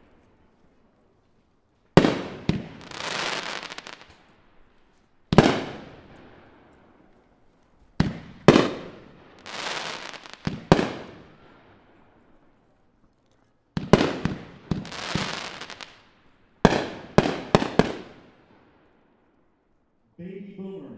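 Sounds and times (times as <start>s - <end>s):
firework bangs: 1.9s - 4.4s, 5.3s - 6.7s, 8.0s - 11.9s, 13.8s - 18.7s
firework hissing: 2.5s - 4.0s, 9.4s - 10.6s, 14.8s - 15.9s.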